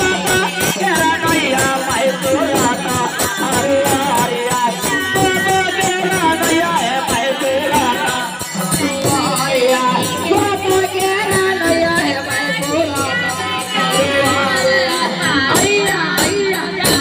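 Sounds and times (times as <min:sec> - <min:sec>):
men singing: 0:00.0 - 0:17.0
small hand cymbals clashing: 0:00.0 - 0:17.0.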